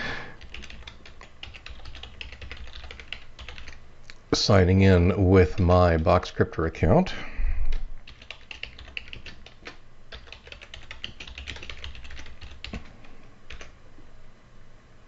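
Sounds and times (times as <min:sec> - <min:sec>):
computer keyboard typing: 0:00.4 - 0:03.8, 0:07.7 - 0:13.8.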